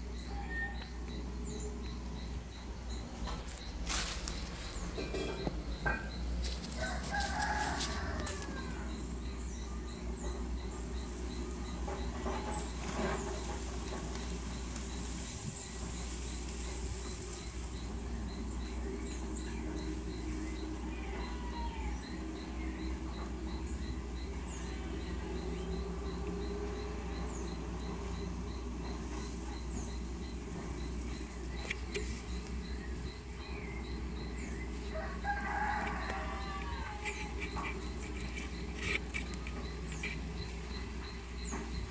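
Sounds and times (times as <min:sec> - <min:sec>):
rapid high chirping: 0:08.3 - 0:41.9
clucking calls: 0:25.9 - 0:41.8.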